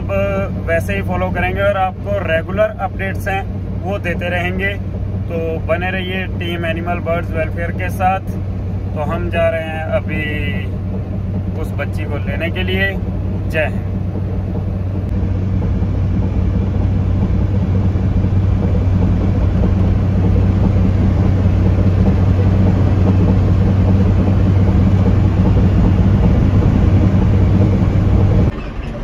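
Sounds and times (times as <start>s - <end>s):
road noise: 0.0s - 29.0s
vehicle engine drone: 0.0s - 29.0s.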